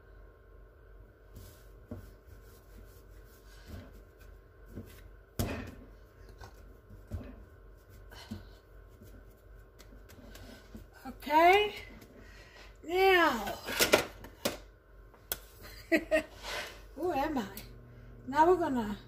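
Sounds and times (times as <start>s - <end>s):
hands rubbing dough: 1.2s - 5.3s, 6.1s - 12.2s.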